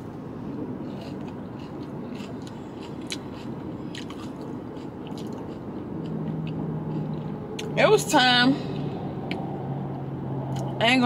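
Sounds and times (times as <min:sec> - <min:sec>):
person chewing crunchy food: 0:00.5 - 0:07.8.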